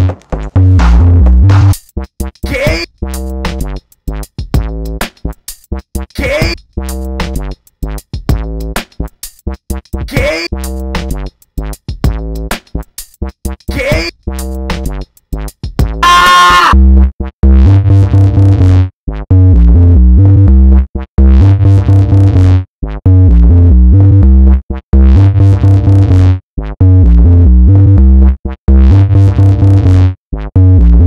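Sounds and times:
distorted electronic dance music: 0.0 - 1.8, 2.4 - 2.9, 6.1 - 6.6, 10.0 - 10.5, 13.6 - 14.1, 15.9 - 16.8.

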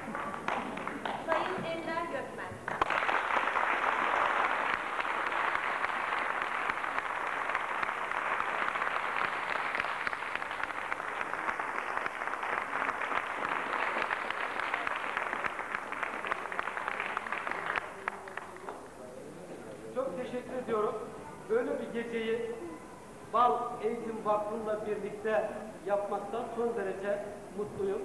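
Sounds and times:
crowd applauding: 0.0 - 1.8, 2.7 - 18.8.

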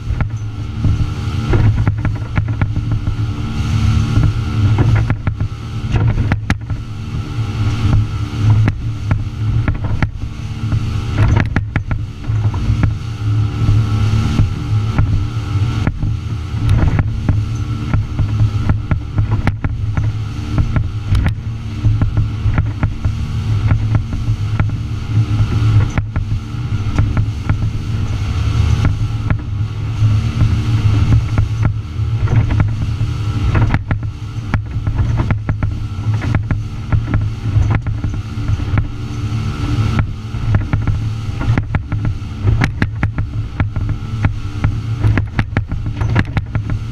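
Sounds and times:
hull slapping against water: 0.0 - 46.9
outboard engines running: 0.0 - 46.9
wind and spray rushing: 0.0 - 46.9.

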